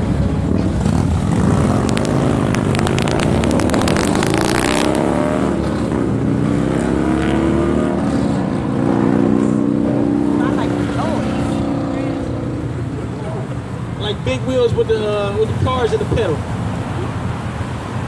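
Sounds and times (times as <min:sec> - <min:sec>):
vehicle engine revving: 0:00.0 - 0:13.9
sharp clicks: 0:01.8 - 0:04.4.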